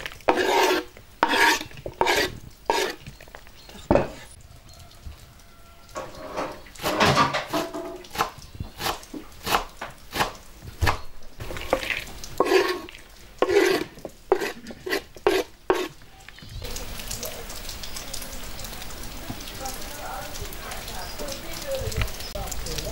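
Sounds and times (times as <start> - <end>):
utensil clinking against a bowl: 11.4 - 16.5.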